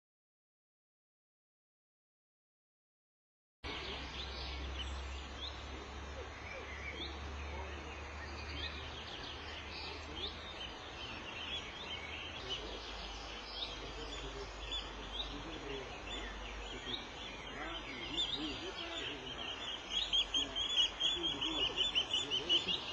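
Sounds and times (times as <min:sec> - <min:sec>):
lapwings alarm calls: 0:09.9 - 0:22.9.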